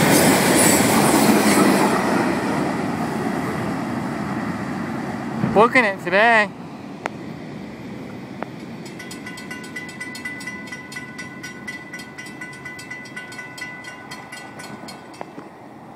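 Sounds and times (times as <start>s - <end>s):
freight train rumble: 0.0s - 15.9s
railroad crossing bell ringing: 8.7s - 15.9s.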